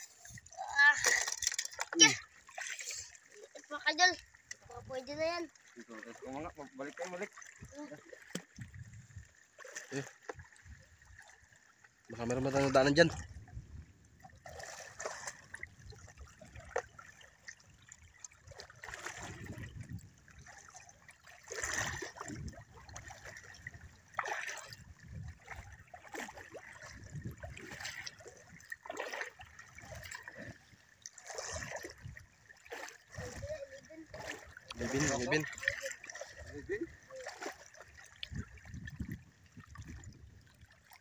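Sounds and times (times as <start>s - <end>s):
feet wading through water: 0.0s - 41.0s.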